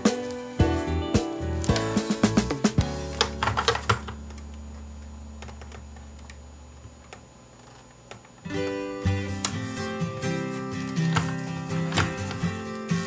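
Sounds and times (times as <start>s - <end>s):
background music: 0.0s - 4.2s, 8.5s - 13.0s.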